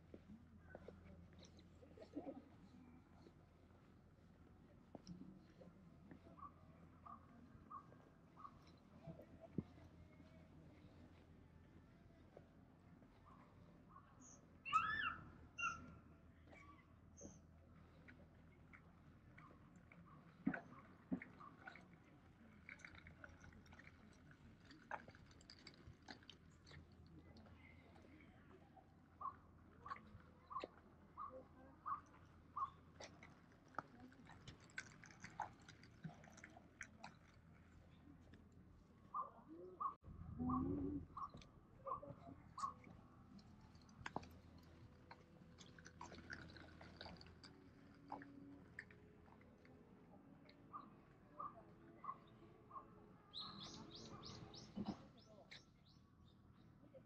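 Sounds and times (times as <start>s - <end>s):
distant bird chirps: 50.7s - 56.6s.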